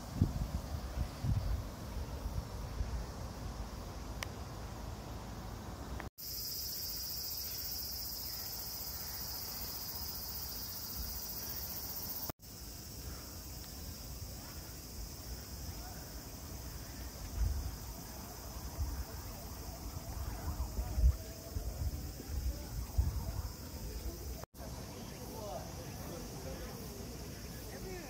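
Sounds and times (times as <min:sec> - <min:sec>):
wind rumbling on microphone: 0:00.0 - 0:03.9, 0:16.5 - 0:24.4
high-pitched insect drone: 0:06.2 - 0:28.0.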